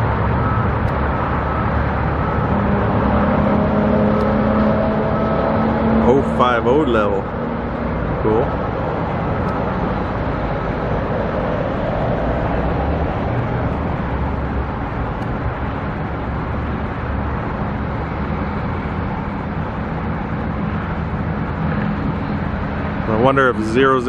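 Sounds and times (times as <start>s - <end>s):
road traffic rumble: 0.0s - 24.0s.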